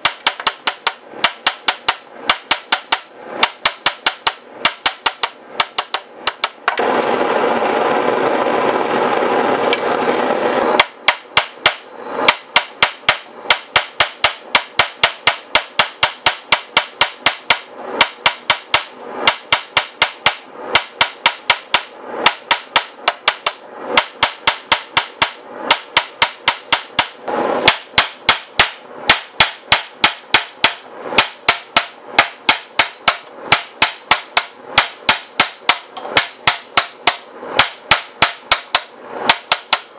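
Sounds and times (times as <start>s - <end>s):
loud rushing noise: 6.6s - 10.9s.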